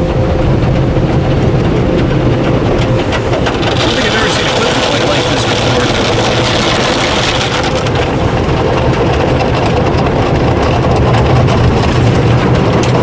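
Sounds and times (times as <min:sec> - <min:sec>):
steady low hum: 0:00.0 - 0:13.0
water spraying on car: 0:01.3 - 0:13.0
cloth brushes washing car: 0:03.7 - 0:08.2.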